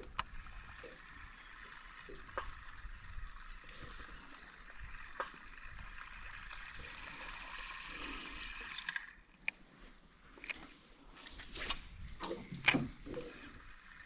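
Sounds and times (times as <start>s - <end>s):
sharp clicks: 0.0s - 1.0s, 11.3s - 13.2s
fishing line hissing through guides: 0.3s - 9.2s, 11.2s - 14.0s.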